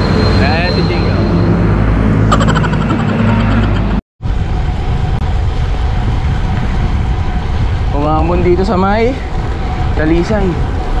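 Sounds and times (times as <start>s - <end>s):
vehicle engine hum: 0.0s - 11.0s
wind and road noise: 0.0s - 11.0s.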